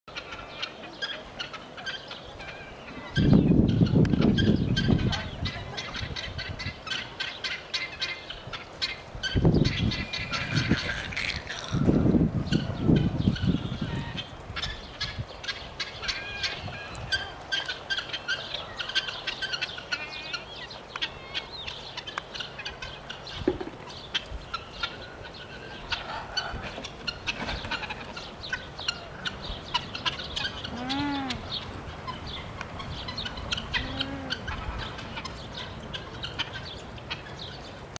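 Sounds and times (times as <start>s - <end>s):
birds chirping: 0.1s - 37.9s
rising and falling bird calls: 8.9s - 37.8s.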